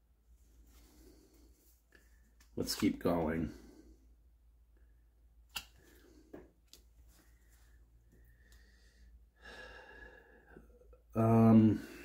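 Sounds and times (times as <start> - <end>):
soft card rustle: 0.6 - 3.3
card snapping on wooden table: 5.5 - 5.9.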